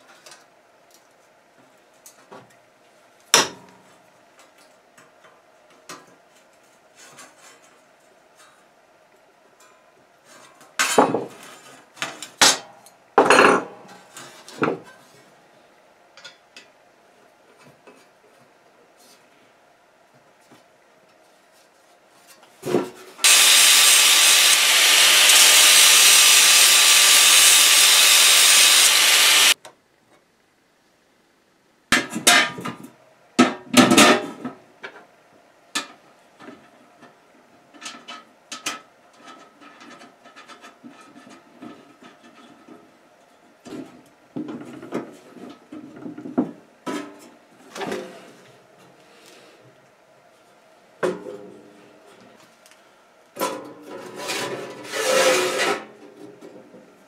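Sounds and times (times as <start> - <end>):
loud rushing noise: 23.3 - 29.6.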